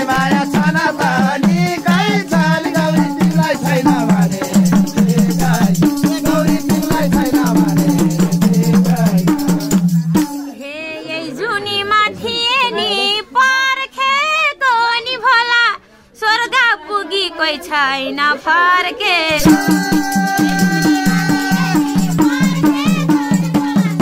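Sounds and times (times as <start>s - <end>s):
fast percussion with rattle: 0.0s - 10.6s, 19.3s - 24.0s
folk music with singing: 0.0s - 24.0s.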